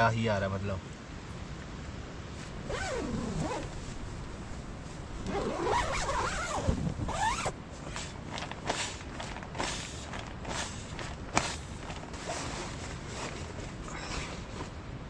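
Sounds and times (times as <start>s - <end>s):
rustling: 2.3s - 14.9s
zipper pulled: 2.6s - 4.0s, 5.2s - 14.8s.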